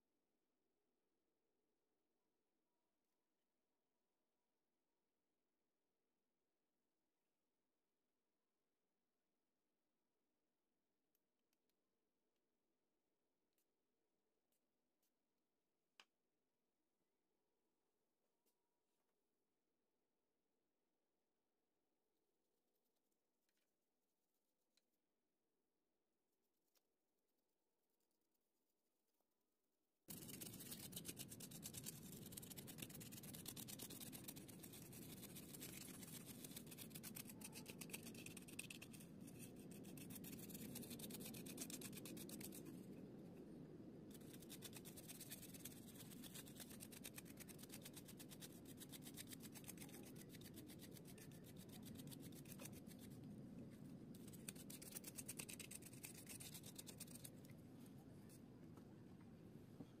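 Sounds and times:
brush scrubbing circuit board: 30.1 - 43.0, 44.1 - 53.2, 54.2 - 57.4.

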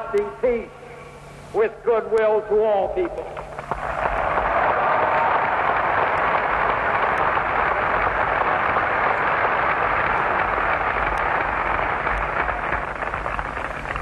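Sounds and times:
crowd applauding and cheering: 3.4 - 14.0.

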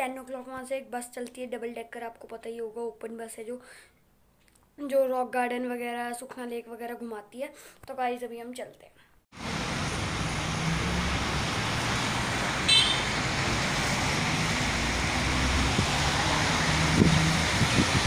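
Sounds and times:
road traffic: 9.3 - 18.0
bus engine hum: 9.4 - 18.0
wind noise: 12.5 - 18.0
horn toot: 12.6 - 13.3.

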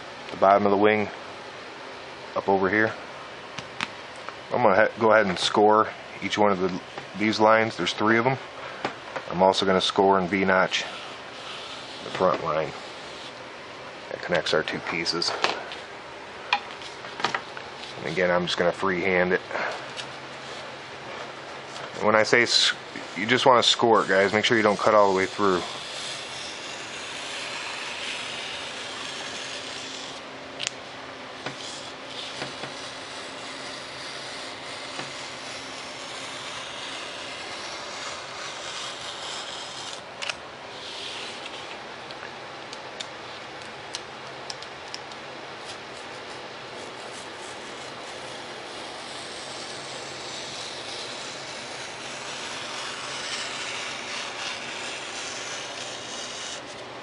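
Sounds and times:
knife scoring foam board: 10.7 - 13.4, 22.7 - 30.2, 31.4 - 40.0, 40.7 - 41.8, 45.6 - 56.8.

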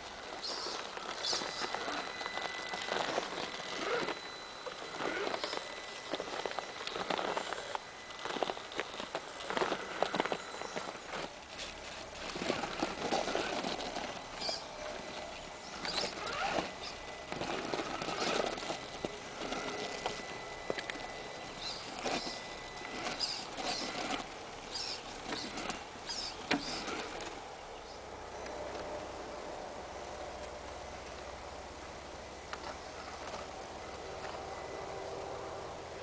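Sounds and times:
brief thin motor whine: 0.4 - 11.3, 12.3 - 27.4.

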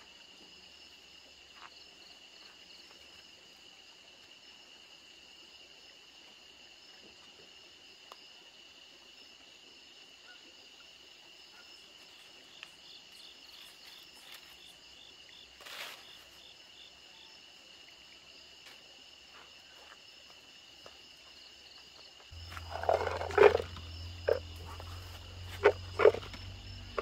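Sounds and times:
night insects trilling: 0.0 - 27.0
insect chirping in pulses: 21.3 - 27.0.

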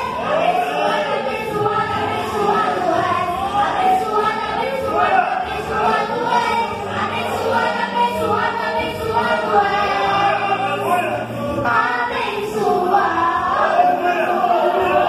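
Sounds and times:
girl singing into a microphone: 1.1 - 10.0.

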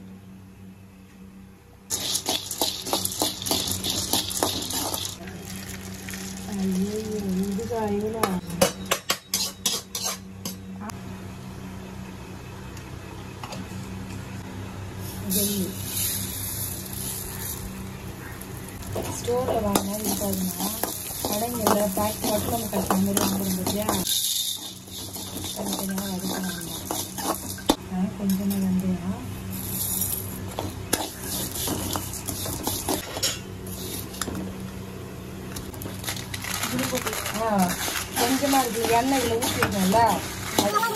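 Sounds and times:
low steady hum: 0.0 - 40.9
metal spoon scraping a pan: 1.9 - 5.2, 9.1 - 10.6, 19.0 - 27.8, 29.8 - 34.3, 37.7 - 40.9
seeds sliding across pan: 1.9 - 5.2, 20.0 - 27.6.

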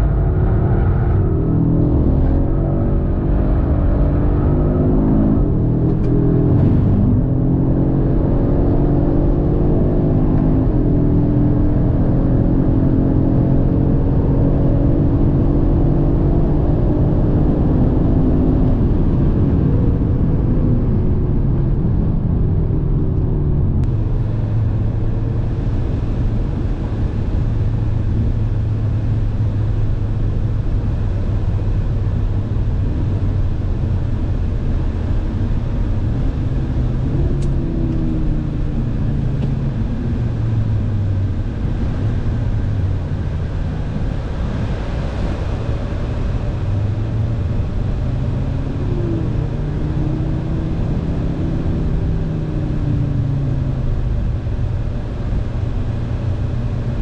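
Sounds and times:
car engine pulling hard: 0.0 - 57.0
wind and road noise: 0.0 - 57.0.

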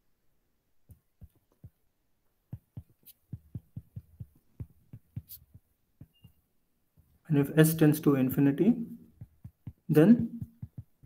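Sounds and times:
stylus tapping on tablet: 0.9 - 7.2, 9.1 - 11.0.

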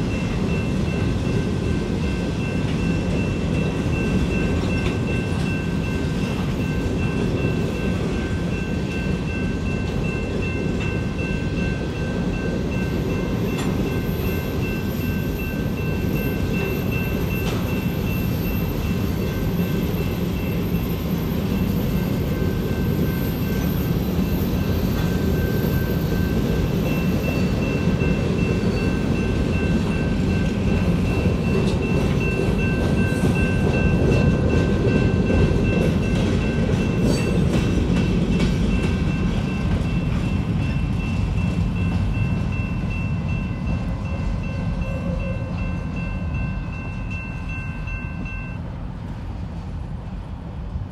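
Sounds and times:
steel wheels on rail: 0.0 - 50.9.

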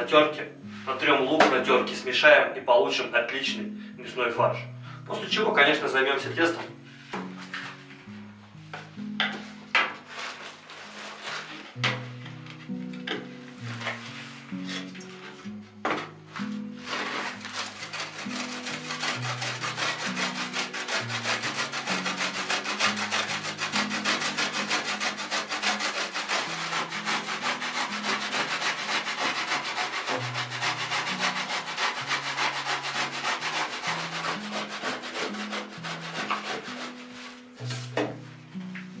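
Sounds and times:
hand grater rasping: 16.8 - 37.0.

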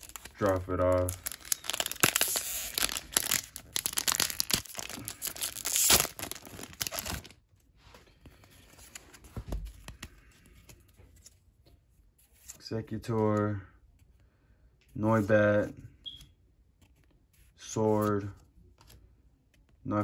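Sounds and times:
foil pack tearing: 0.0 - 7.3
cards rustling: 0.0 - 7.4, 8.2 - 11.6.

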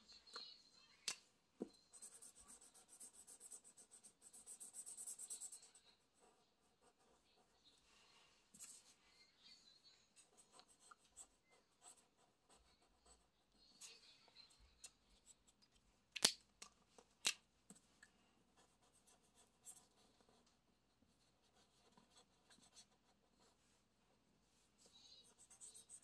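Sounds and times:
marker scratching on paper: 1.8 - 7.5, 8.6 - 8.9, 24.8 - 26.0.

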